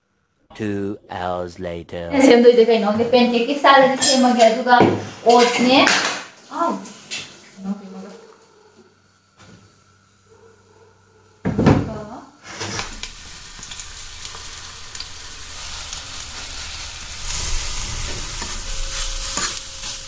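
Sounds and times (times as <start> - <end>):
batter sizzling in hot oil: 12.4 - 20.0.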